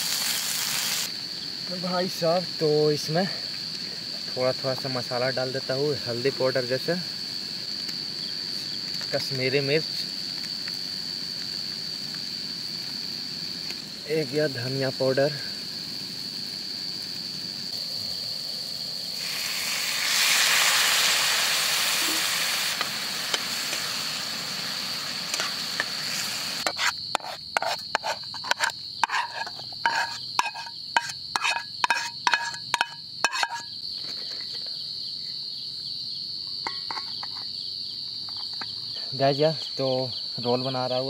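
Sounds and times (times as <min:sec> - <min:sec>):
hiss: 0:00.0 - 0:04.4, 0:05.9 - 0:30.7
crickets trilling: 0:00.0 - 0:41.0
spoon clattering against metal pan: 0:31.4 - 0:33.7.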